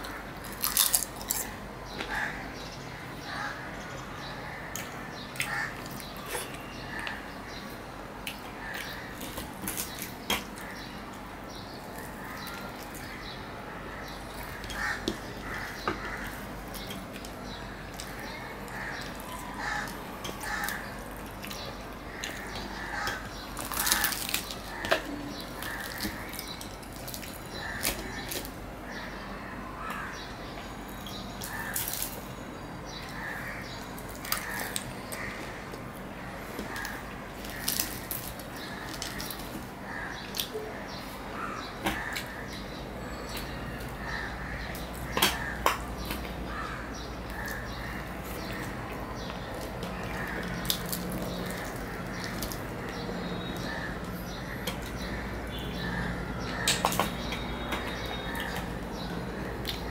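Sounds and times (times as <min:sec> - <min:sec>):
fried bread tearing: 0:00.4 - 0:01.5, 0:18.0 - 0:24.8, 0:36.7 - 0:39.7, 0:49.5 - 0:52.8
wet chewing: 0:14.3 - 0:28.6.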